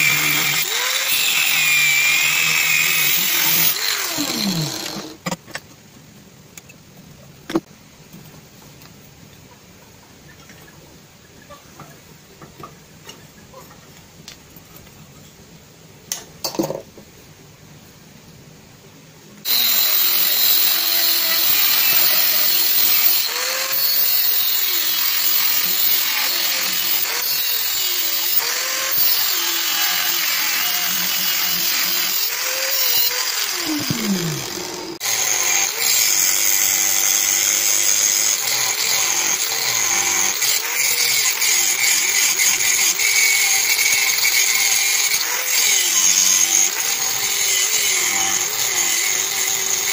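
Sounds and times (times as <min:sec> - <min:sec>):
angle grinder cutting steel: 0:00.0 - 0:05.2, 0:19.5 - 0:49.9.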